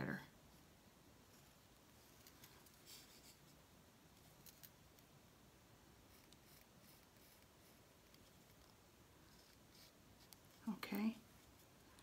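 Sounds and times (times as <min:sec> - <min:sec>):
pencil scratching: 0:02.6 - 0:03.6, 0:06.0 - 0:11.7.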